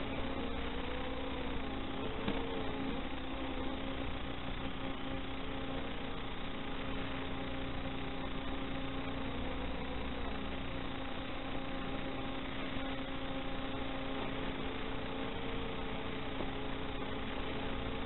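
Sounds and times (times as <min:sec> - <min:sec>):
electrical hum and hiss: 0:00.0 - 0:18.0.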